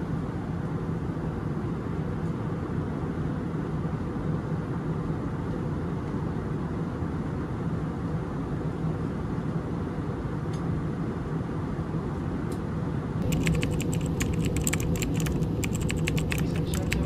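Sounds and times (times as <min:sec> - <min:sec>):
airliner cabin drone: 0:13.2 - 0:17.0
quick light clicks and rattles: 0:13.2 - 0:17.0.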